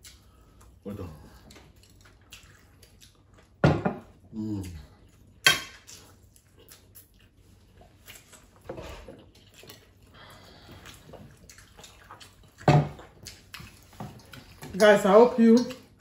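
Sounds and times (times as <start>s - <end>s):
chewing: 0.0s - 3.6s, 4.4s - 16.0s.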